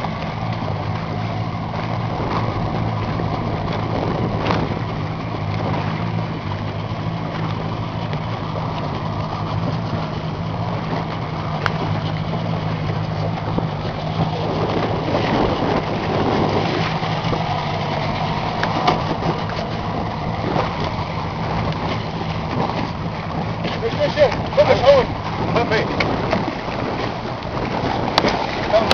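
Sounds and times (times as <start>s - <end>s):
boat engine running: 0.0s - 28.9s
rushing water noise: 0.0s - 28.9s
faint clicks: 11.6s - 11.8s.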